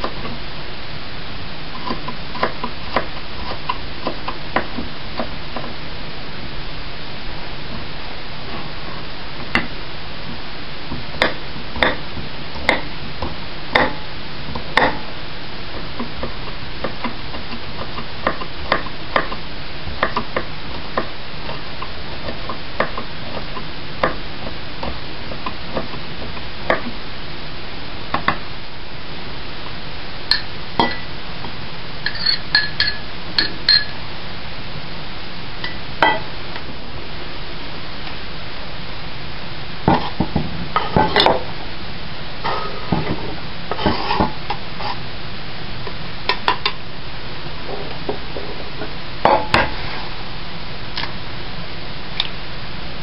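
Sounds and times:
steady hiss: 0:00.0 - 0:53.0
metal clinking on ceramic: 0:32.1 - 0:33.9.

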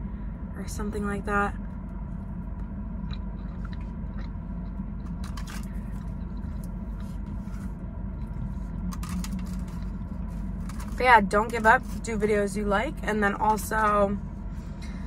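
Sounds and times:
car cabin hum: 0:00.0 - 0:15.0
person chewing: 0:03.0 - 0:10.9.

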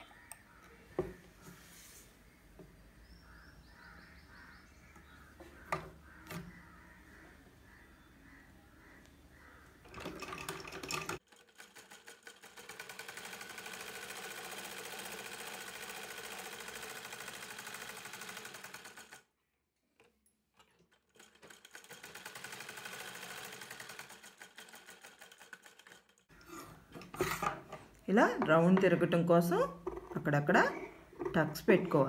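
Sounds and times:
sewing machine stitching: 0:09.8 - 0:19.2, 0:20.6 - 0:26.3.

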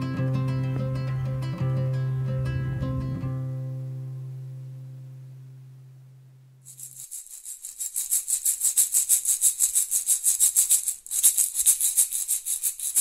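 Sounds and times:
low guitar note: 0:00.0 - 0:06.6
fast shaker rhythm: 0:06.6 - 0:13.0.

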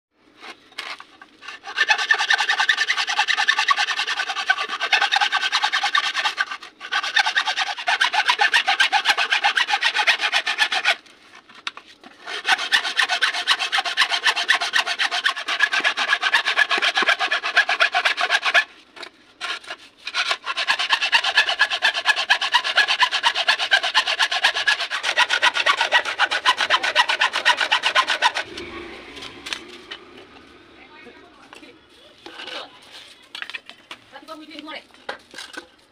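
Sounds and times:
hacksaw cutting bamboo: 0:00.8 - 0:11.1, 0:12.0 - 0:18.7, 0:19.4 - 0:30.0.

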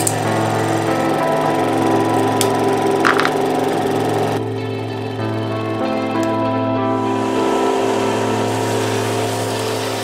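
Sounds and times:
steady low hum: 0:00.0 - 0:09.9
background music of held notes: 0:00.0 - 0:10.0.

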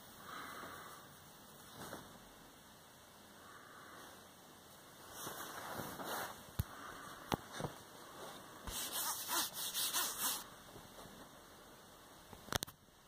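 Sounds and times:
dog rustling on bedding: 0:05.0 - 0:06.5
dog sniffing quickly: 0:08.7 - 0:10.4.

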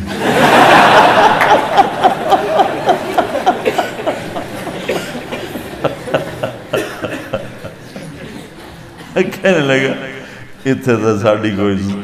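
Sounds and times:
man laughing: 0:00.0 - 0:08.0.

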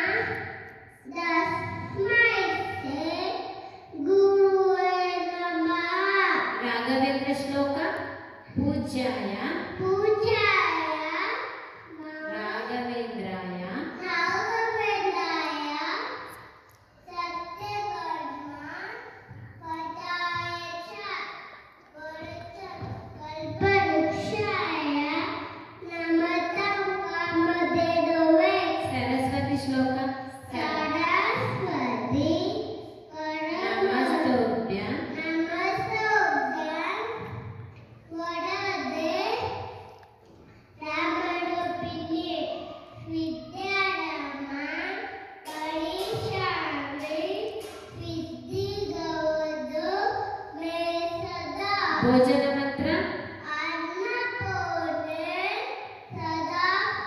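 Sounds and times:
boy chanting a prayer verse: 0:30.3 - 0:32.6.

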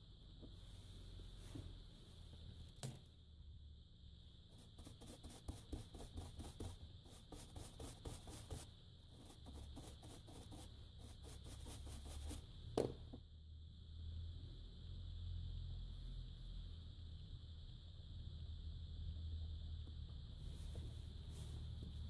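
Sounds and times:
brush scrubbing circuit board: 0:04.6 - 0:12.5.

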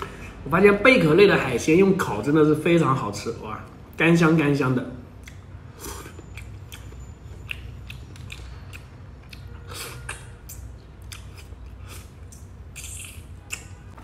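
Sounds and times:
person chewing and sucking shellfish: 0:05.2 - 0:14.0
wet smacks and clicks: 0:12.3 - 0:14.0.

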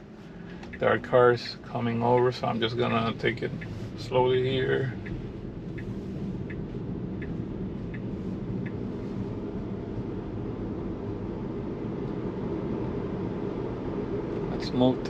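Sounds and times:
tyre and road noise in car: 0:00.0 - 0:15.0
faint tick: 0:00.4 - 0:00.9, 0:02.0 - 0:08.9.

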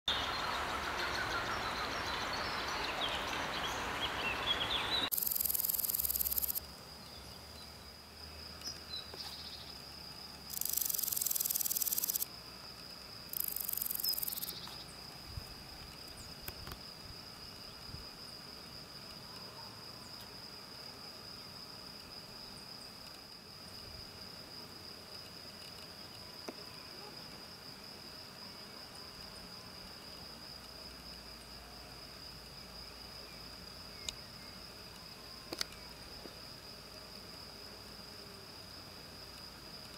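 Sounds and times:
outdoor ambience with chirps: 0:00.1 - 0:39.9
grasshopper buzzing: 0:05.1 - 0:06.6, 0:10.5 - 0:12.3, 0:13.3 - 0:14.6.

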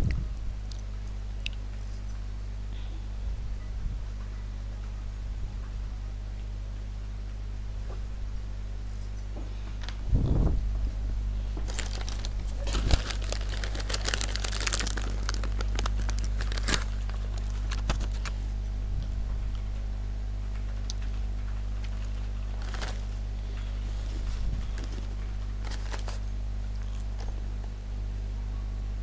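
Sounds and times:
sheet crinkling and rustling: 0:11.5 - 0:18.5, 0:21.8 - 0:27.6.

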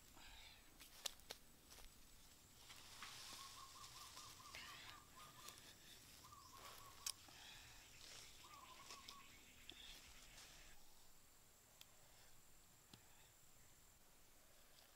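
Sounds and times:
soft rustling: 0:00.8 - 0:07.0
faint bird trill: 0:03.1 - 0:10.4.

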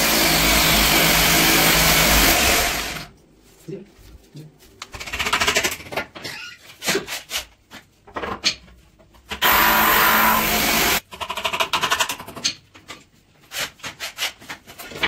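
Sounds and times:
power tool running: 0:00.0 - 0:03.1, 0:09.4 - 0:11.0.

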